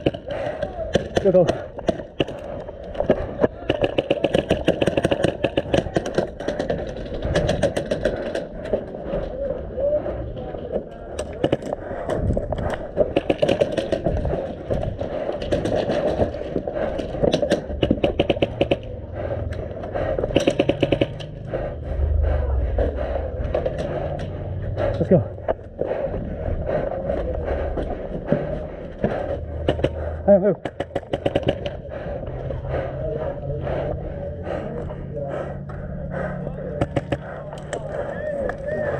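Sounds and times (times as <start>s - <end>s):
airsoft gunfire bursts: 3.6s - 6.7s, 20.4s - 21.2s.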